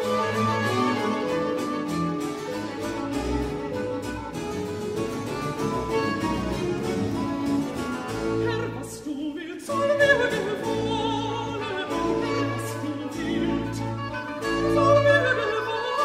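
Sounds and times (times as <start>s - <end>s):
baroque strings and continuo: 0.0s - 16.0s
solo voice singing: 7.9s - 16.0s.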